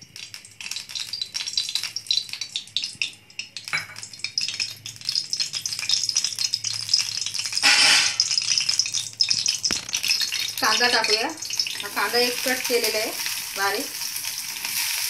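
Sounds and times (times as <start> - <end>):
oil crackling and spitting: 8.2 - 10.7.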